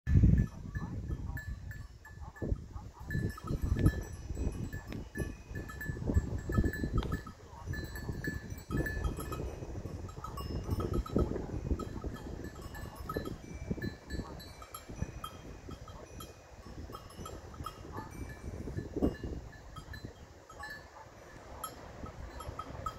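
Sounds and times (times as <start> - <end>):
bell tinkling: 0.4 - 22.9.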